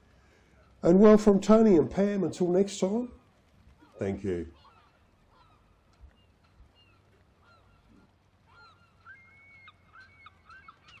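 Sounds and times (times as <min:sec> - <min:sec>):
faint bird calls: 0:00.1 - 0:01.2, 0:03.6 - 0:11.0.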